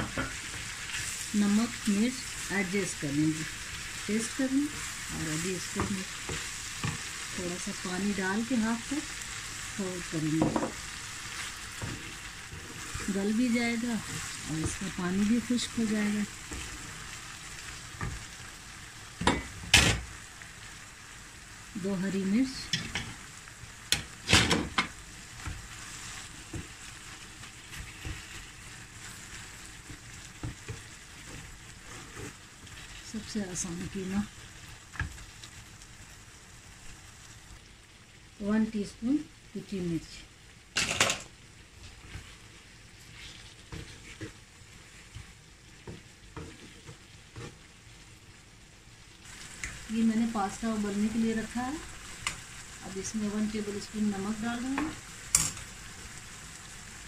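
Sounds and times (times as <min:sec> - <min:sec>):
meat sizzling: 0:00.0 - 0:57.0
wooden spatula scraping a pan: 0:10.2 - 0:17.2, 0:25.4 - 0:34.0, 0:41.8 - 0:47.7.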